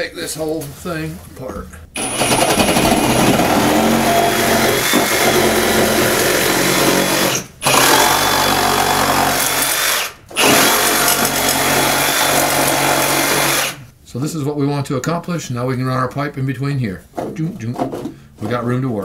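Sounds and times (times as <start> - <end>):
reciprocating saw cutting wood: 2.0 - 13.8.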